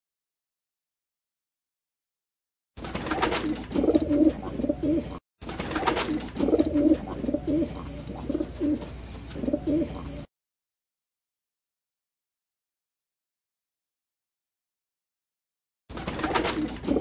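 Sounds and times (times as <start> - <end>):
pigeon cooing: 3.2 - 5.2, 5.8 - 10.3, 16.2 - 17.0.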